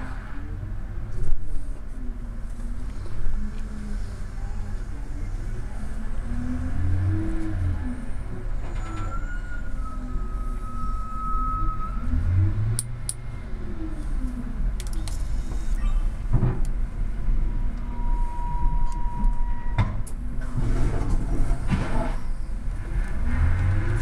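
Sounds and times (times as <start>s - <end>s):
train rumbling over rails: 2.3s - 24.0s
high wheel squeal: 8.5s - 12.4s, 17.8s - 20.0s.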